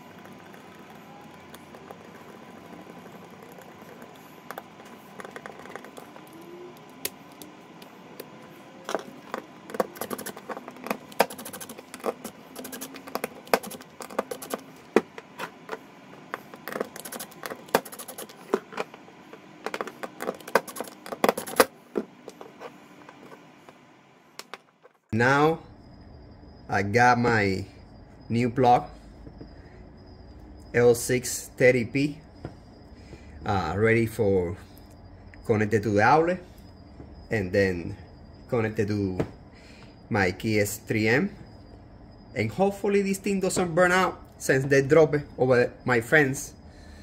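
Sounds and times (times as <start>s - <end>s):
small parts clicking and scraping: 8.9s - 14.7s, 15.4s - 21.7s.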